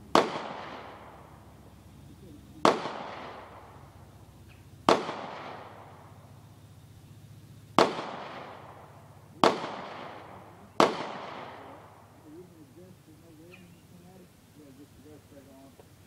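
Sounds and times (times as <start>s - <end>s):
pistol shots with echo: 0.0s - 1.6s, 2.5s - 4.1s, 4.8s - 6.4s, 7.8s - 12.3s.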